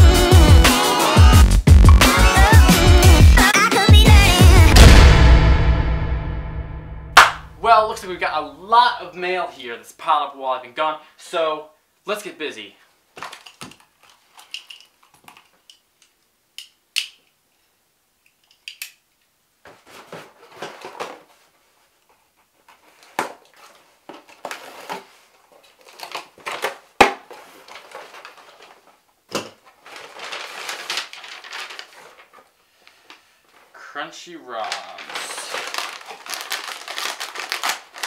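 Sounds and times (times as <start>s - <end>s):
sharp knock: 4.7s - 7.6s
cardboard flaps rustling: 19.6s - 21.8s, 22.5s - 32.5s
packing tape tearing: 23.0s - 28.8s, 29.5s - 32.5s, 34.7s - 38.0s.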